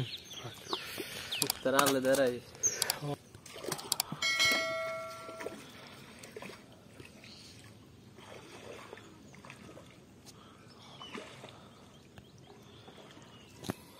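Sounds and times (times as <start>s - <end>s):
small clicks: 1.4s - 3.0s
fish sloshing in water: 5.2s - 10.1s, 10.9s - 11.8s.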